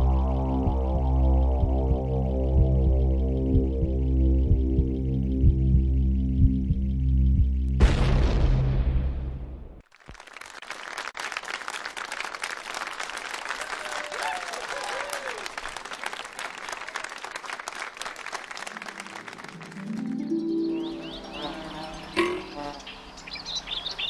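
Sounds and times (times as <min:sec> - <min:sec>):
low musical tone: 0:00.0 - 0:07.8, 0:18.7 - 0:23.2
birds chirping: 0:19.8 - 0:24.0.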